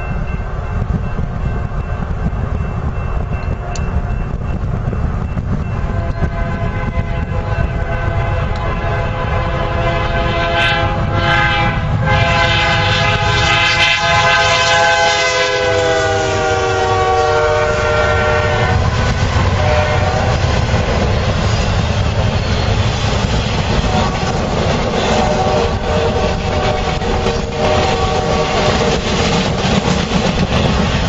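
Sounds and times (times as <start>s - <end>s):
freight cars rumbling on track: 0.0s - 31.0s
train air horn: 5.9s - 20.6s, 23.8s - 29.1s.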